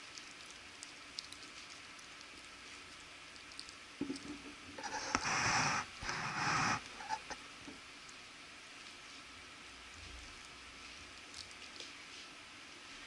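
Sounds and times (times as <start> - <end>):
puppy gnawing chew bone: 0.0 - 5.0, 10.0 - 12.3.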